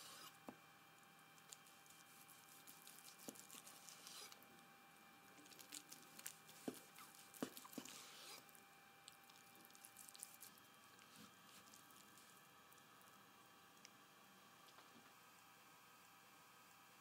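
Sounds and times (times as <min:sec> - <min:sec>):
knife slicing through meat: 0:01.6 - 0:04.4, 0:06.2 - 0:08.5.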